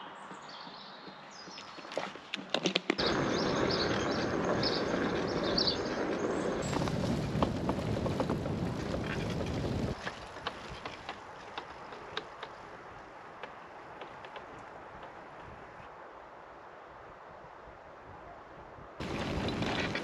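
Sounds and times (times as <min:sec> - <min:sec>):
wind buffeting microphone: 0:03.0 - 0:13.1, 0:17.2 - 0:20.0.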